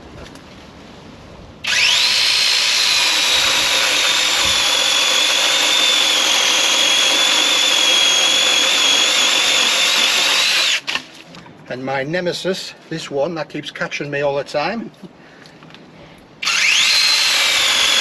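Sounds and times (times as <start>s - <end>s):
electric chainsaw whining: 1.6s - 11.0s, 16.4s - 18.0s.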